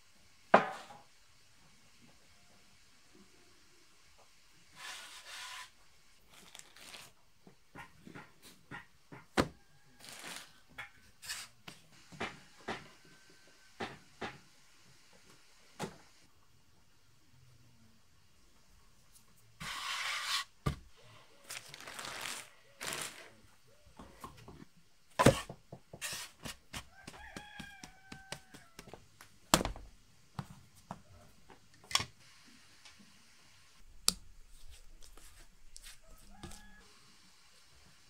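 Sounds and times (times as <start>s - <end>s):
dough rustling scrapes: 19.6s - 20.6s, 21.4s - 23.4s
hands slapping dough on wooden board: 25.2s - 30.5s.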